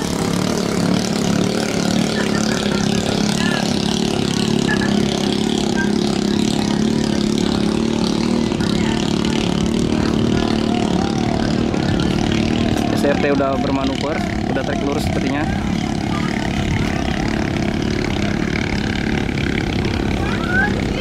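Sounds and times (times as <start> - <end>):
motorcycle engines droning: 0.0 - 21.0.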